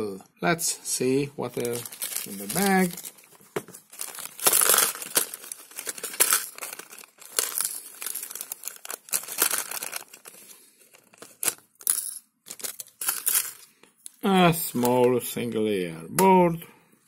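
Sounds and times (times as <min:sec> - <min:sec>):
plastic bag crinkling: 0:01.5 - 0:11.8.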